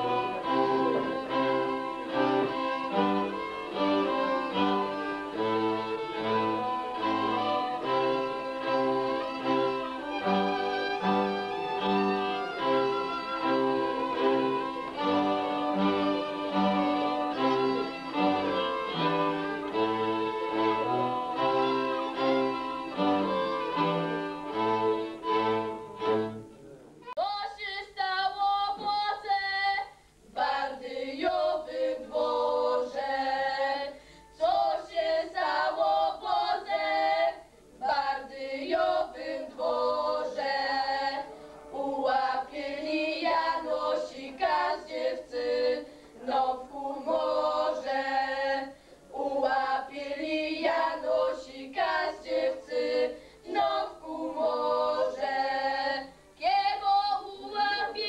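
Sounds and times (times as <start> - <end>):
girls singing a cappella: 27.4 - 58.0.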